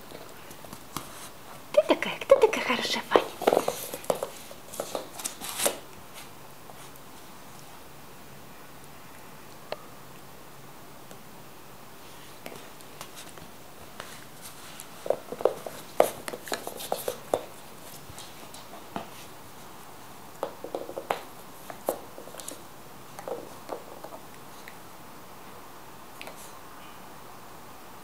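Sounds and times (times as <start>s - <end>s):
puppy chewing a toy ball: 14.0s - 19.2s, 20.4s - 24.8s.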